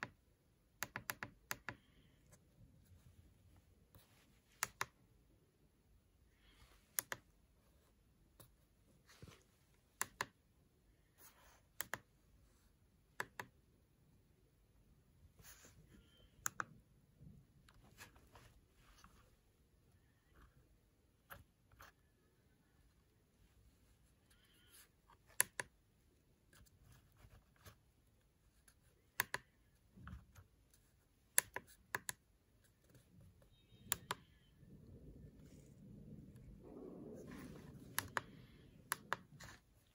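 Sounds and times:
keypad keys clicking: 0:00.8 - 0:01.9, 0:33.5 - 0:34.5
push-buttons clicking: 0:33.5 - 0:34.4.

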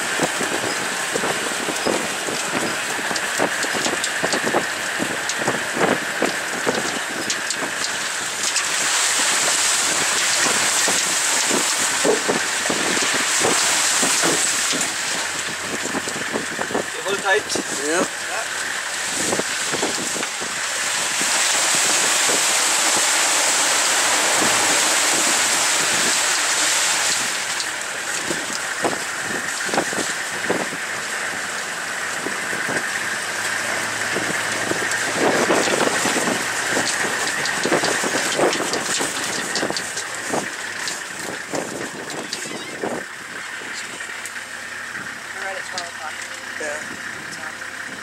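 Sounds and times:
vehicle knocks and rattles: 0:00.0 - 0:48.0
wind and road noise: 0:00.0 - 0:48.0.

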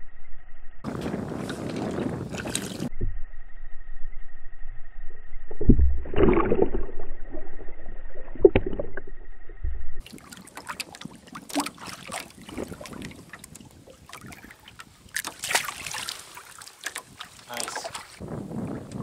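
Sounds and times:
water lapping: 0:10.0 - 0:18.2
fish splashing at the surface: 0:15.1 - 0:18.1.

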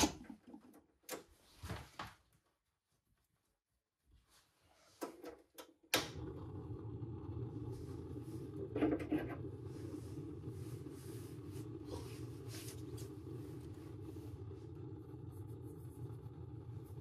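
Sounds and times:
gas burner burning: 0:05.7 - 0:17.0.

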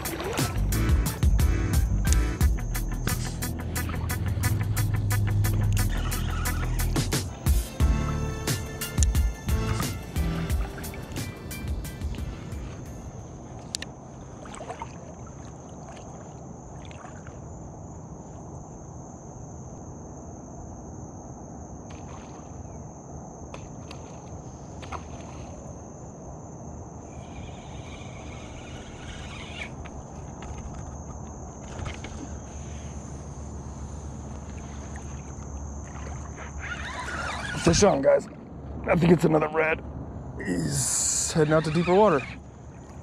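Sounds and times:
high-pitched insect drone: 0:00.0 - 0:13.4, 0:26.6 - 0:38.0, 0:40.4 - 0:42.9
low rumble of wind and water: 0:00.0 - 0:43.0.

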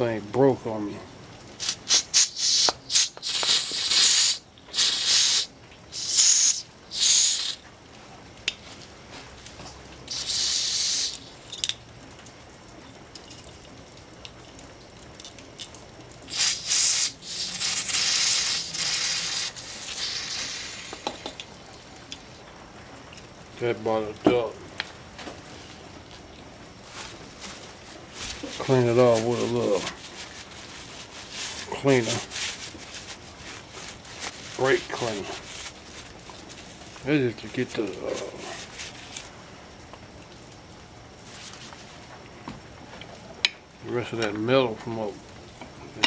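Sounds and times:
aerosol spray bursts: 0:01.6 - 0:07.6, 0:10.1 - 0:11.2, 0:16.3 - 0:21.4.

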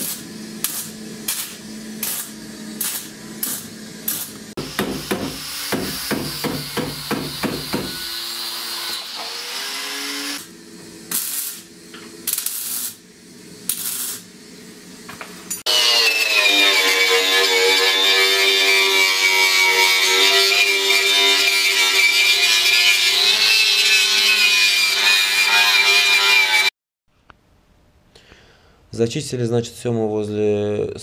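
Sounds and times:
mig welder crackling: 0:00.0 - 0:05.1, 0:10.0 - 0:15.6.

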